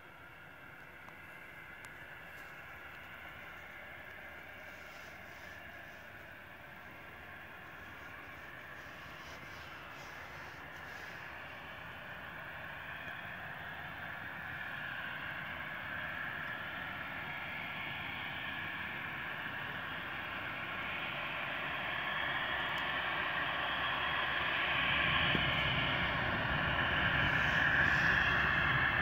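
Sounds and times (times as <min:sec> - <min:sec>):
jet engine roar: 0:00.0 - 0:29.0
deep rumble: 0:24.8 - 0:29.0.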